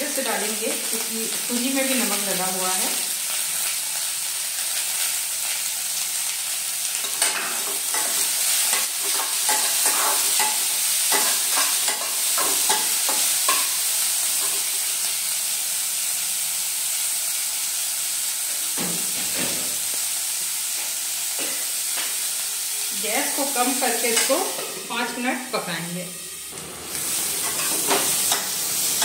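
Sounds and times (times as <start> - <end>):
vegetables sizzling in oil: 0.0 - 29.0
metal spatula scraping a pan: 7.0 - 13.7.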